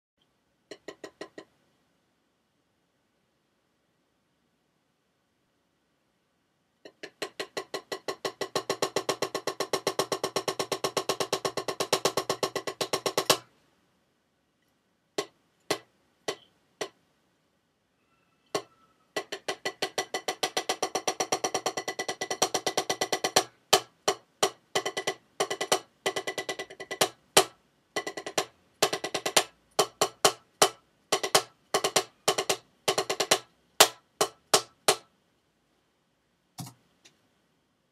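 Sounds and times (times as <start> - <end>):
drumstick on practice pad: 6.9 - 13.5, 15.2 - 17.0, 18.5 - 35.1.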